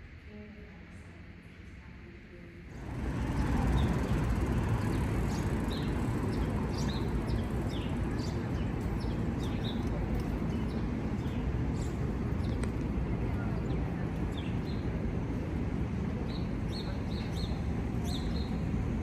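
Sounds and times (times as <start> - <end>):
traffic rumble: 0.0 - 19.0
small birds chirping: 2.9 - 12.7, 16.3 - 18.7.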